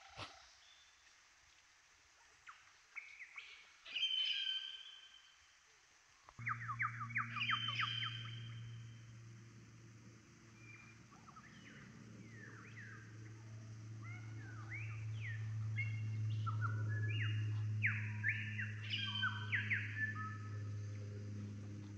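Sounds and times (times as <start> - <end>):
birds singing in chorus: 2.4 - 5.3, 6.4 - 9.0, 10.5 - 21.9
steady low hum: 6.3 - 21.9.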